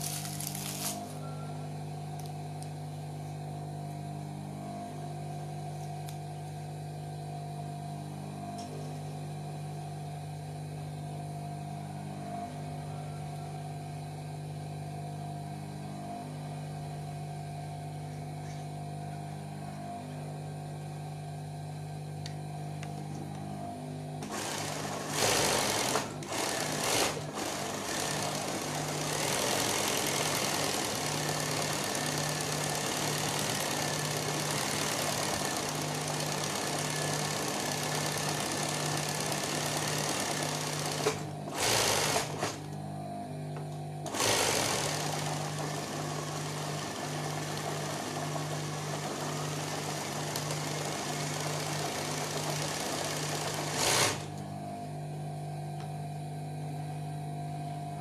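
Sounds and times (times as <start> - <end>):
sewing machine motor humming: 0.0 - 1.2, 24.2 - 42.7, 44.0 - 54.5
sewing machine stitching rattle: 24.2 - 42.6, 44.1 - 54.3.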